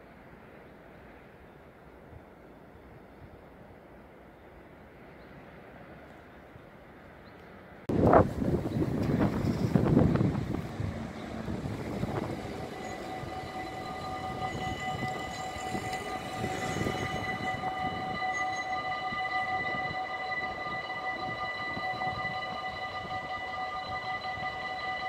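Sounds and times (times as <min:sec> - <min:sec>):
train rumbling past: 0:00.0 - 0:25.0
high multi-tone whine: 0:07.9 - 0:25.0.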